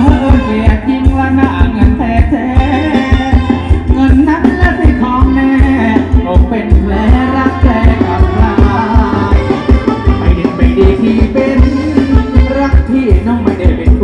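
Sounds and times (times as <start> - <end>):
melodic instruments: 0.0 - 14.0
person singing: 0.0 - 14.0
steady drum beat: 0.0 - 14.0.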